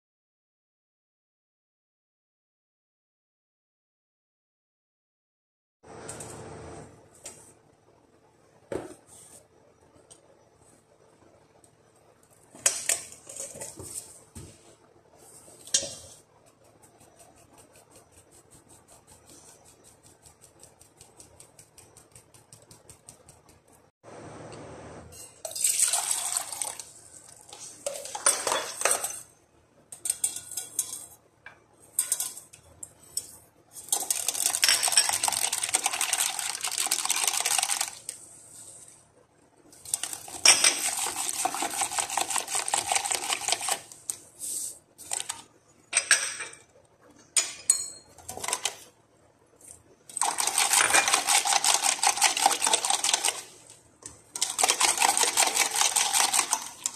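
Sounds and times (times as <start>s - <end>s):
whisk clattering in metal bowl: 12.6s - 14.0s, 15.6s - 23.8s, 25.4s - 29.3s, 29.9s - 31.2s, 31.8s - 38.0s, 39.8s - 44.0s, 47.4s - 48.9s, 50.1s - 53.7s, 54.3s - 56.9s.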